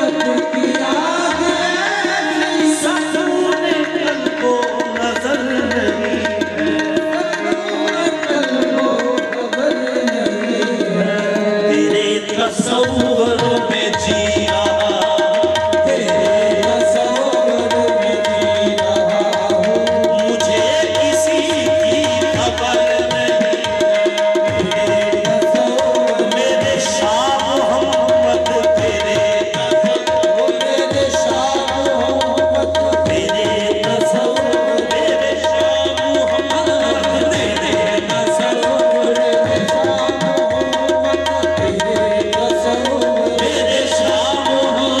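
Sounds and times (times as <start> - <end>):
harmonium: 0.0 - 45.0
live devotional music: 0.0 - 45.0
tabla drumming: 0.0 - 45.0.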